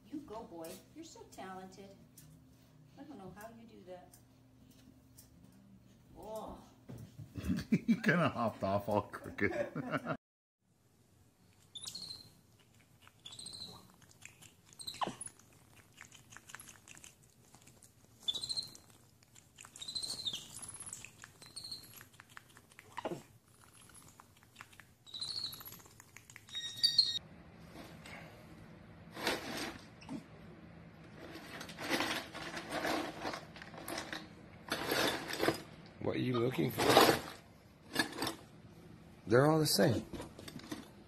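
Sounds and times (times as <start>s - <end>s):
monkey chirping squeaks: 11.7s - 12.4s, 13.2s - 13.9s, 14.7s - 15.4s, 18.2s - 18.9s, 19.6s - 22.1s, 25.0s - 27.2s
monkey sharp squeals: 11.8s - 12.3s, 13.2s - 13.9s, 18.3s - 18.8s, 19.8s - 21.9s, 25.1s - 25.8s, 26.5s - 27.2s.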